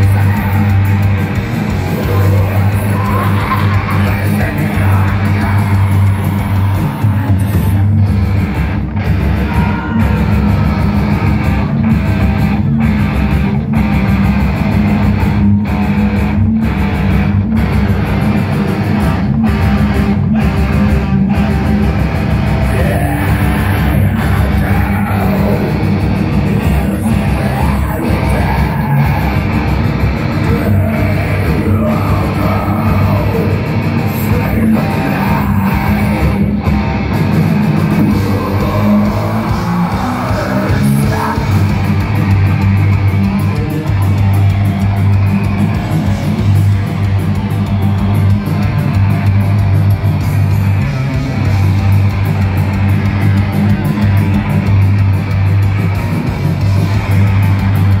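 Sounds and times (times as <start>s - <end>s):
harsh screamed vocals: 0.0s - 11.9s, 19.8s - 37.1s, 37.8s - 49.2s
bass: 0.0s - 58.0s
distorted electric guitars: 0.0s - 58.0s
drums: 0.0s - 58.0s.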